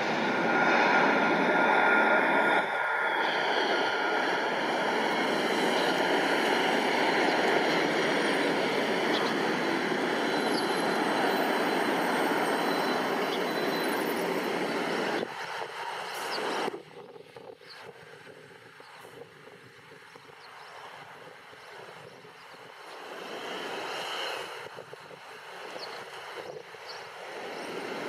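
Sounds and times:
high engine whine: 0:00.0 - 0:16.9
jet engines roaring overhead: 0:00.0 - 0:28.0.

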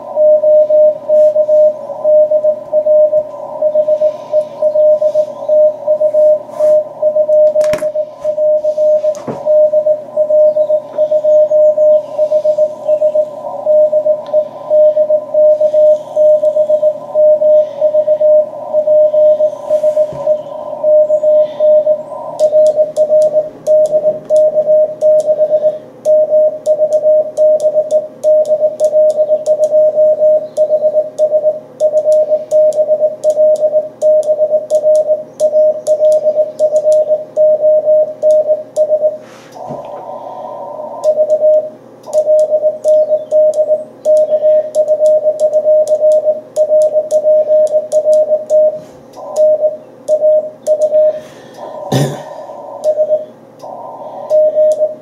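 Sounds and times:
radio hiss: 0:00.0 - 0:26.0, 0:39.2 - 0:42.3, 0:48.6 - 0:55.0
morse code tone: 0:00.0 - 0:55.0.

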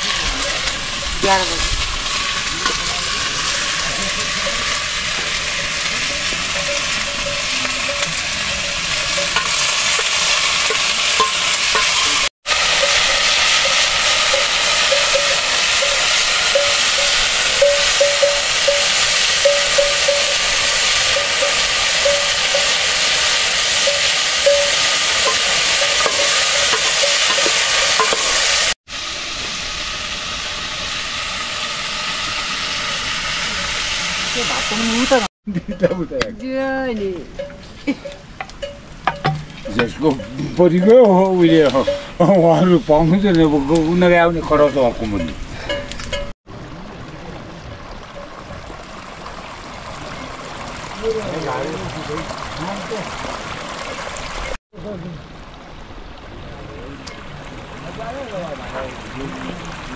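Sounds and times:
potatoes sizzling in a pan: 0:00.0 - 0:35.3.

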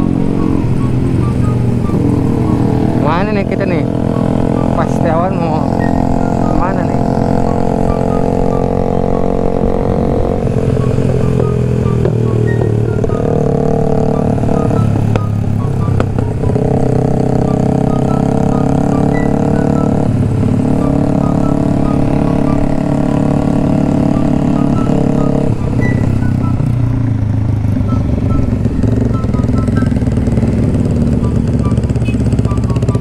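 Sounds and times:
background music with melody: 0:00.0 - 0:33.0
motorcycle engine cruising: 0:00.0 - 0:33.0.

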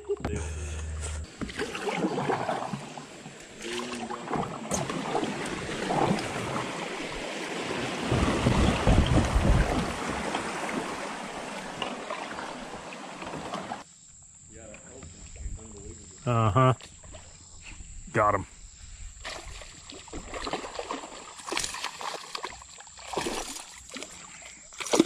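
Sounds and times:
river water rushing over riffle: 0:03.7 - 0:13.8
wind buffeting microphone: 0:07.8 - 0:11.0.

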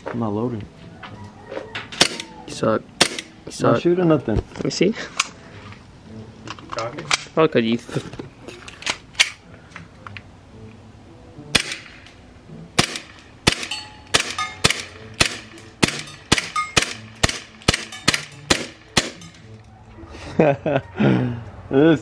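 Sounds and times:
bb pistol shots: 0:02.0 - 0:02.4, 0:03.0 - 0:03.4, 0:11.5 - 0:12.0, 0:12.8 - 0:19.4.

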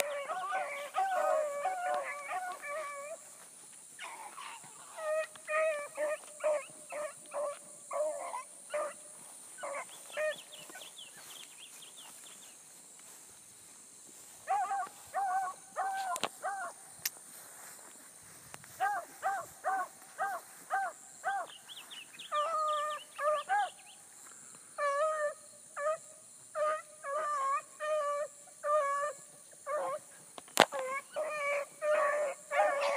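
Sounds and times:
hounds barking: 0:00.0 - 0:03.4, 0:04.0 - 0:11.4, 0:14.2 - 0:16.8, 0:18.7 - 0:23.9, 0:24.8 - 0:30.1, 0:30.7 - 0:32.9.

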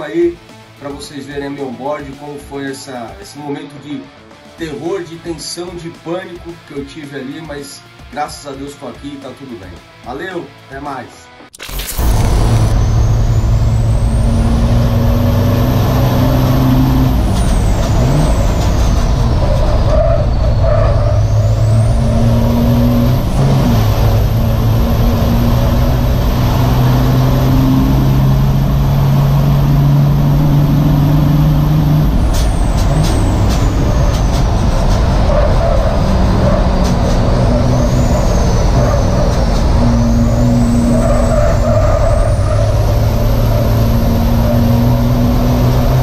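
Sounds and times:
high whistle rising and falling: 0:12.0 - 0:28.6, 0:29.6 - 0:45.8
truck diesel engine running hard: 0:12.0 - 0:46.0.

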